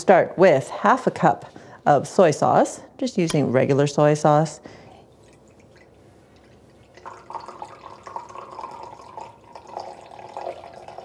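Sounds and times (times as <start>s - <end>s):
liquid pouring into cup: 5.1s - 11.0s.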